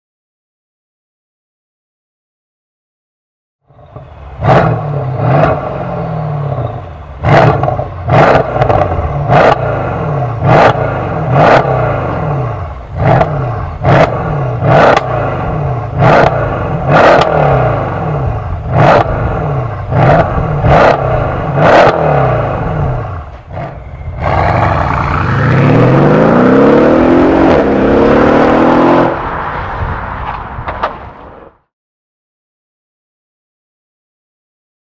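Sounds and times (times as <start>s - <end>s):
car engine revving: 3.7s - 31.4s
car accelerating hard: 3.8s - 30.2s
exhaust cracks: 12.9s - 28.2s.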